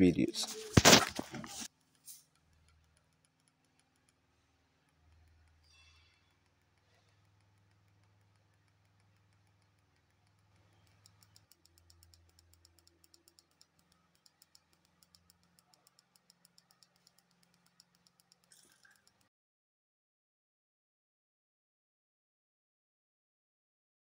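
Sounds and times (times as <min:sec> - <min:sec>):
faint rapid ticking: 0:01.6 - 0:19.3.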